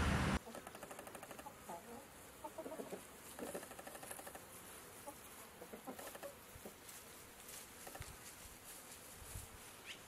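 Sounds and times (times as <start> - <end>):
chickens clucking softly: 0.4 - 4.4, 5.0 - 6.8.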